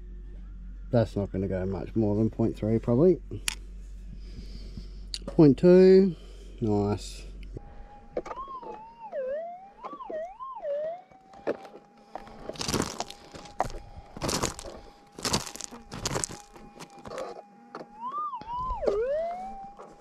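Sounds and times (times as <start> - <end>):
metal detector warbling hum: 6.7 - 20.0.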